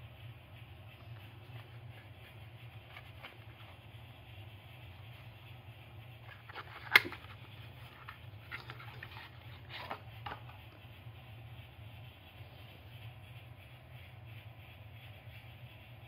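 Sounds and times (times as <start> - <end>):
card rustling and scraping: 0.9 - 11.0.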